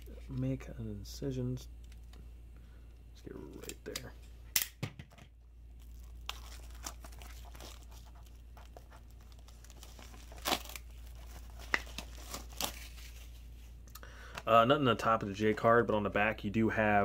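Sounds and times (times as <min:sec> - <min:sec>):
plastic wrap crinkling and tearing: 0:05.8 - 0:13.5.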